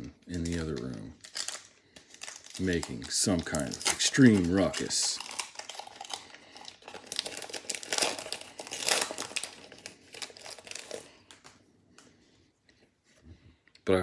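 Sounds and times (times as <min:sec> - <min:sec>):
foil wrapper crinkling: 0:00.3 - 0:11.6.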